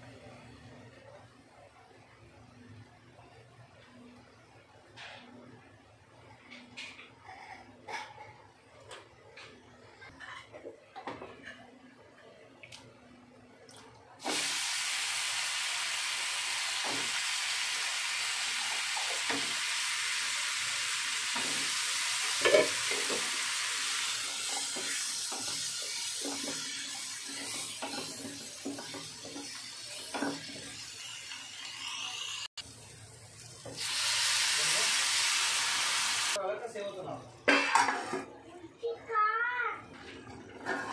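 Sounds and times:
potatoes sizzling in hot oil: 14.2s - 36.4s
wooden spatula scraping a pan: 40.4s - 40.9s.

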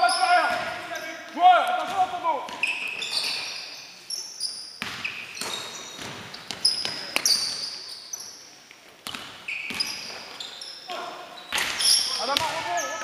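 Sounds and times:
shoes squeaking on court: 0.0s - 13.0s
basketball bouncing on wooden floor: 4.8s - 7.3s.

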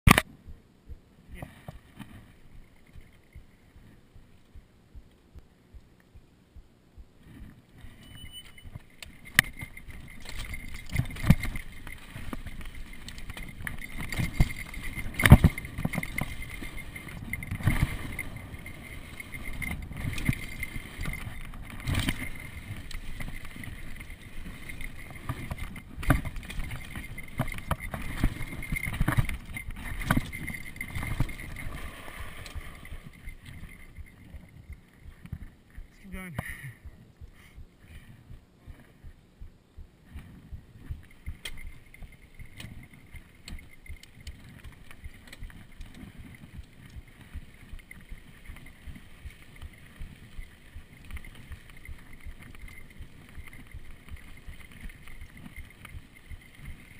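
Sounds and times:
bike rattling: 1.8s - 4.0s, 7.3s - 36.0s, 40.1s - 56.9s
bike knocking on bumps: 8.7s - 35.9s
tyres rumbling over dirt: 9.1s - 34.7s.

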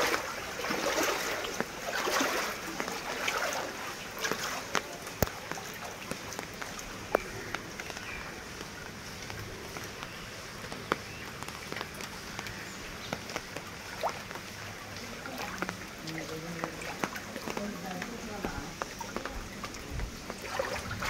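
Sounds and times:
drops tapping water: 0.0s - 21.0s
rain on floodwater: 0.0s - 21.0s.

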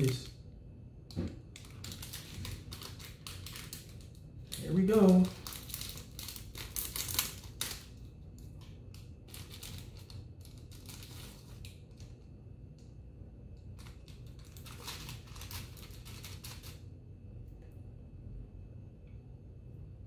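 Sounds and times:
foil snack pouch crinkling: 1.5s - 12.2s, 13.7s - 16.8s.

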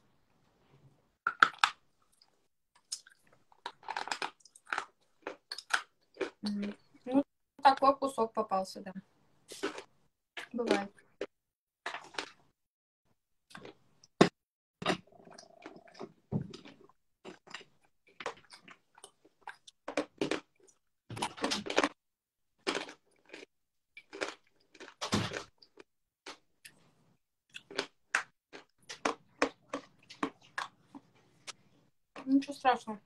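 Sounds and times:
clay being chewed crunching: 1.3s - 6.9s, 22.6s - 31.7s.

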